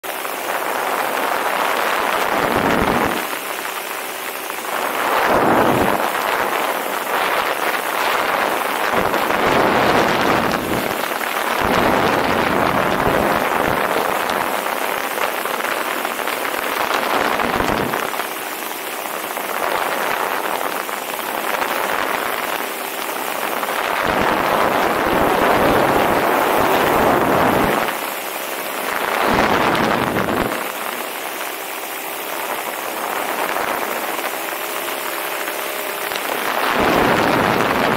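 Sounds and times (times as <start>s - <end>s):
two-stroke engine drone: 0.0s - 37.9s
wind rushing over microphone: 0.0s - 37.9s.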